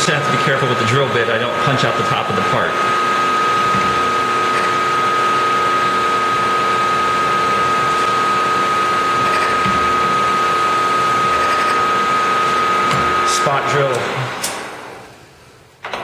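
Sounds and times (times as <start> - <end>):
milling spindle whine: 0.0 - 14.9
drill cutting metal: 0.4 - 14.8.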